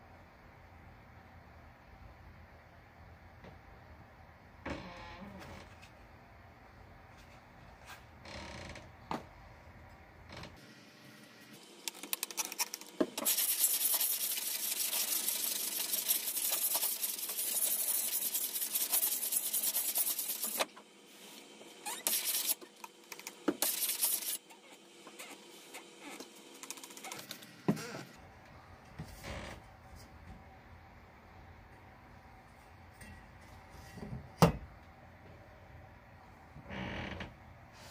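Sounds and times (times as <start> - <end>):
block scraping along saw blade: 12.2 - 20.7.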